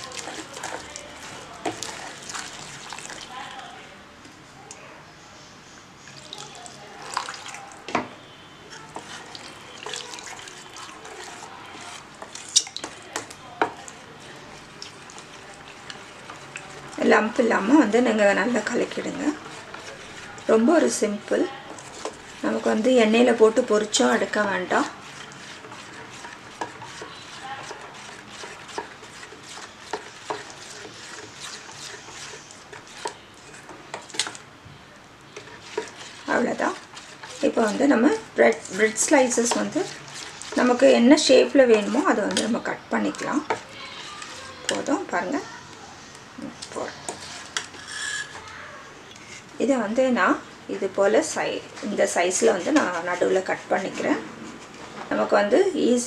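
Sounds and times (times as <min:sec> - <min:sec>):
spoon stirring thick batter: 0:00.0 - 0:03.8, 0:06.0 - 0:56.0
whisk clinking against bowl: 0:18.6 - 0:34.4, 0:35.4 - 0:41.0.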